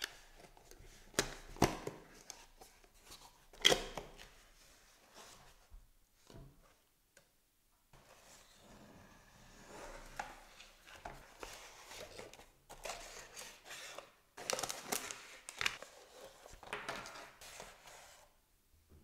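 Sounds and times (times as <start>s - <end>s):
cardboard rustling and scraping: 8.0s - 18.4s.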